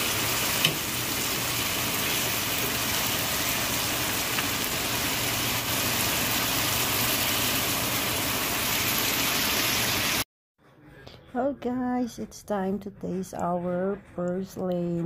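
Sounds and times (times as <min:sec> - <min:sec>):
food sizzling in a pan: 0:00.0 - 0:10.3.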